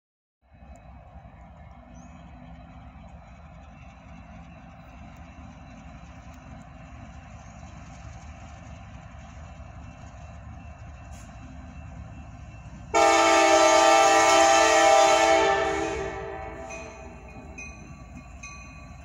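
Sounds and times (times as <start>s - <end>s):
locomotive air horn blast: 13.0s - 17.0s.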